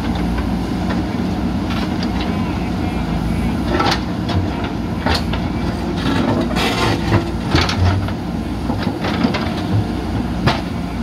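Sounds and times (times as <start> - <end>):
diesel engines running under load: 0.0 - 11.0
buckets clanking and scraping concrete: 3.6 - 10.8.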